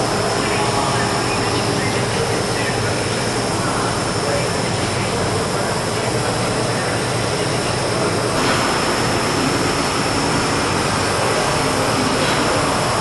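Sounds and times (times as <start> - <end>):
bagging machine running: 0.0 - 13.0
thin high whine: 0.0 - 13.0.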